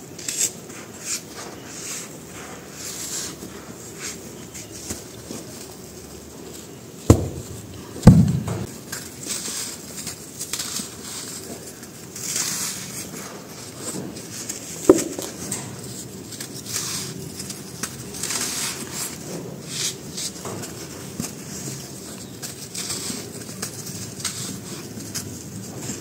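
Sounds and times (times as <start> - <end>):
gritty rustling: 0.2 - 26.0
sharp crack: 7.1 - 8.7, 14.9 - 15.7
trickling powder: 8.6 - 26.0.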